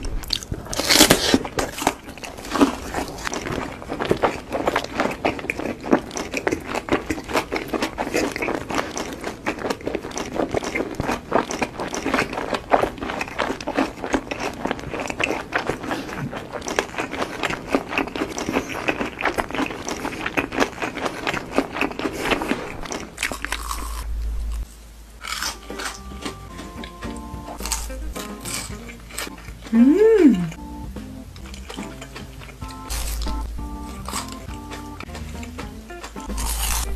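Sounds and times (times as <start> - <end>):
crunching and chewing food: 0.0 - 36.9
low hum: 22.4 - 36.9.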